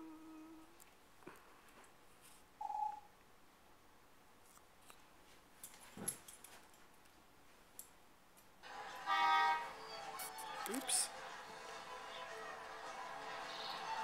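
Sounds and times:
soft clicks and rustles: 0:04.4 - 0:08.6.

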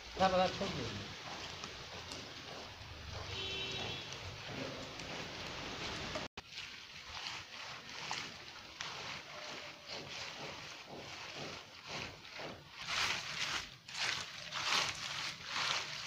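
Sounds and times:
hands sorting wet fish: 0:03.3 - 0:16.0.

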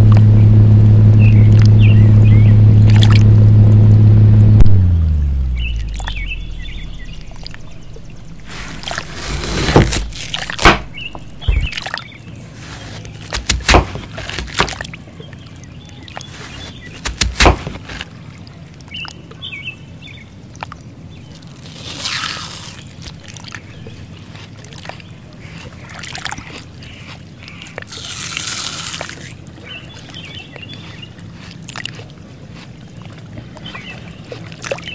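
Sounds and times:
bird chirps: 0:01.2 - 0:02.6, 0:05.3 - 0:13.5, 0:15.1 - 0:17.8, 0:29.6 - 0:32.0, 0:33.6 - 0:34.9
water sloshing and splashing: 0:02.7 - 0:03.4, 0:05.4 - 0:34.9.

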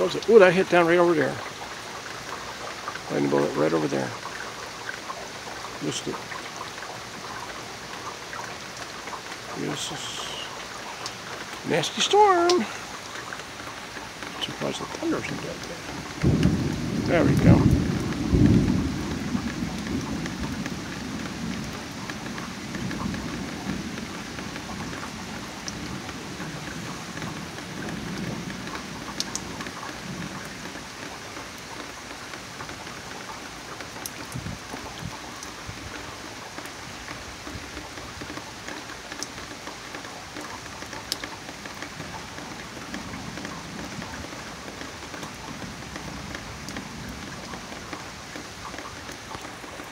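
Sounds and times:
raindrops ticking on something close: 0:00.0 - 0:49.9
steady rain: 0:00.0 - 0:49.9
thunder rumble: 0:14.4 - 0:30.5.

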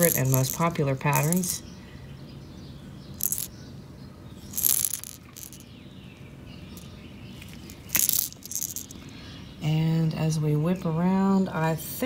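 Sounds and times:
fishing lure rattling: 0:00.0 - 0:01.6, 0:03.2 - 0:03.5, 0:04.5 - 0:05.7, 0:06.8 - 0:09.1.

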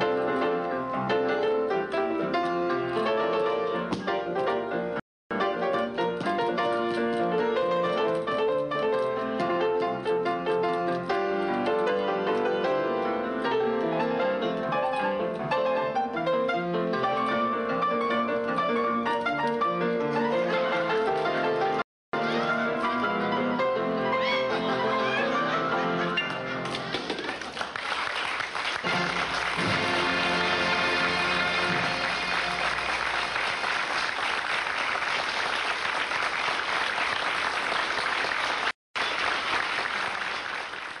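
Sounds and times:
fast piano music: 0:00.0 - 0:26.7, 0:28.2 - 0:35.1
audience applauding: 0:26.6 - 0:41.0.

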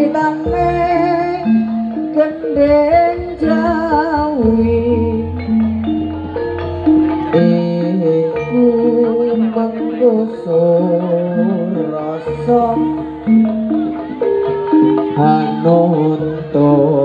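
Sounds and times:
wavering melody line: 0:00.0 - 0:17.0.

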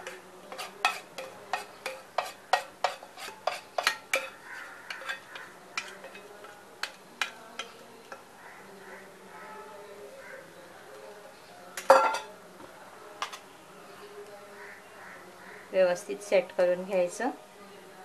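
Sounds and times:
spatula scraping and tapping bowl: 0:00.0 - 0:08.3.

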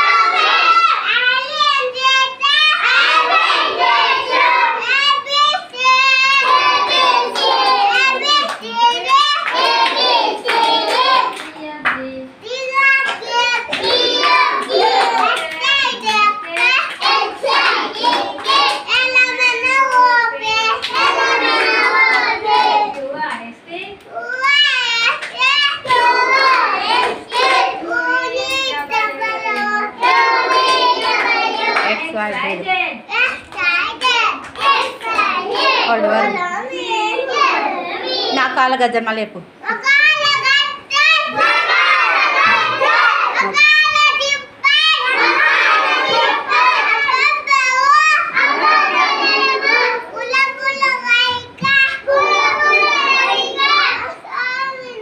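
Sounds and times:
hands clapping: 0:06.4 - 0:12.1, 0:13.0 - 0:19.1, 0:25.0 - 0:27.6, 0:29.5 - 0:32.6, 0:33.2 - 0:35.8.

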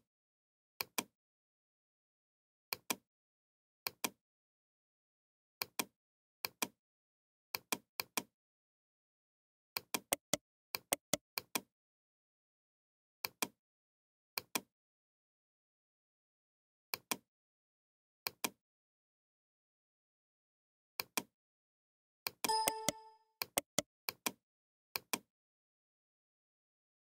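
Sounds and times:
computer mouse clicks: 0:09.8 - 0:11.7, 0:13.2 - 0:13.6, 0:18.3 - 0:18.6, 0:22.5 - 0:24.4.

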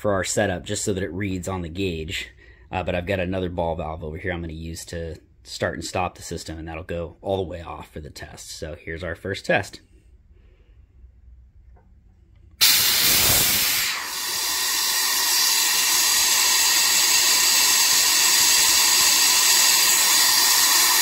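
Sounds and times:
compressed air hissing: 0:12.6 - 0:21.0.

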